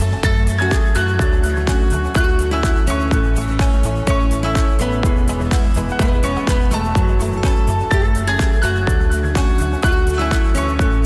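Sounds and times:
electronic music with heavy bass: 0.0s - 11.0s.

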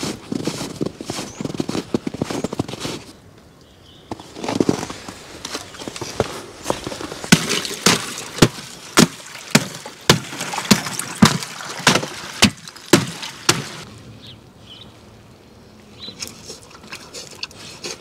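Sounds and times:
sharp knocks: 7.3s - 13.8s.

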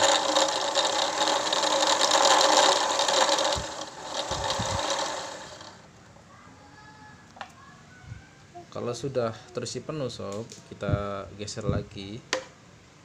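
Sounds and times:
sewing machine motor running: 0.0s - 5.8s.

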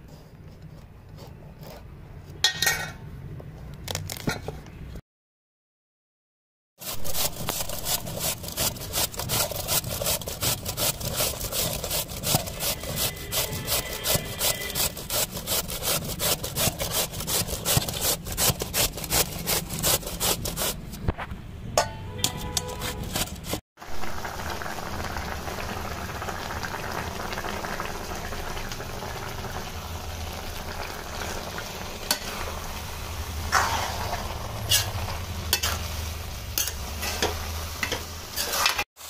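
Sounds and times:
grating on metal grater: 6.8s - 20.8s, 22.3s - 23.6s.

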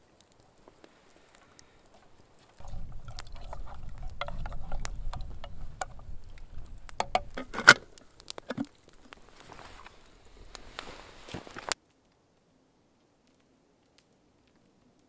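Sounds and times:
campfire crackling and popping: 0.0s - 15.0s
low rumble: 2.6s - 8.0s
metal pot clinking: 2.6s - 8.7s.

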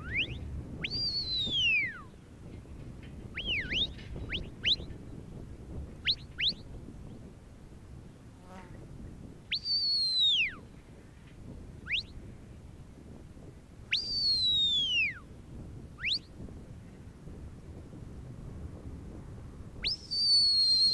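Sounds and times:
whistle commands: 0.0s - 2.1s, 3.4s - 5.0s, 6.0s - 6.7s, 9.5s - 10.6s, 11.8s - 12.2s, 13.9s - 15.3s, 16.0s - 16.3s, 19.8s - 20.9s.

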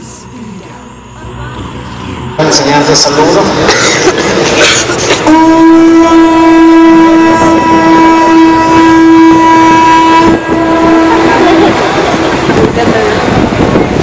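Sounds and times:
conch shell trumpet note: 5.2s - 11.7s.

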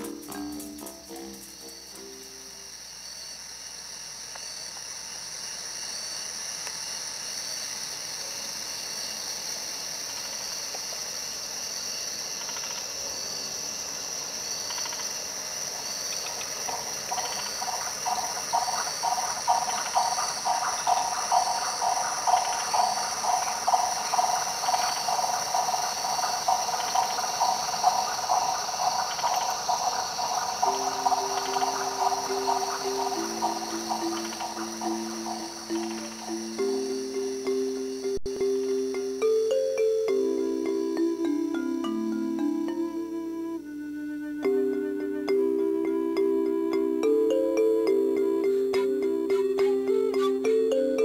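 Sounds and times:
rhythmic pulsing call: 0.0s - 2.8s, 14.7s - 51.0s
insects trilling: 0.0s - 51.0s.

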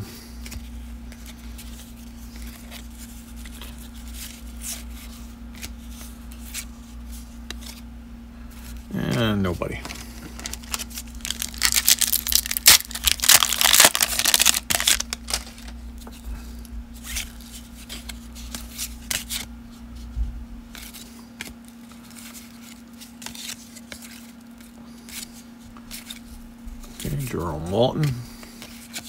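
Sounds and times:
cards rustling and clicking: 0.4s - 7.8s, 8.5s - 19.5s, 20.7s - 27.3s, 27.9s - 29.0s
foil wrapper tearing and crinkling: 10.3s - 15.8s.

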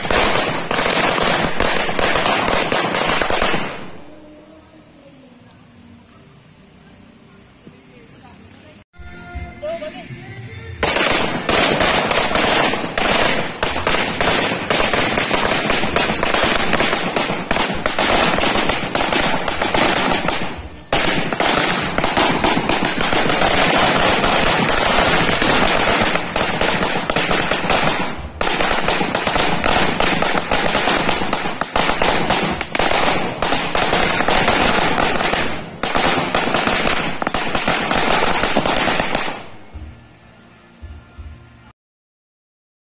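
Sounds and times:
firecrackers exploding: 0.0s - 4.4s, 10.8s - 39.9s.

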